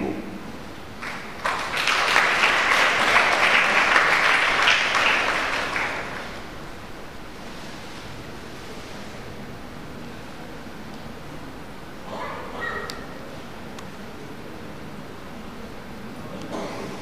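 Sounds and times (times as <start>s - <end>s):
audience applauding: 1.0s - 6.6s.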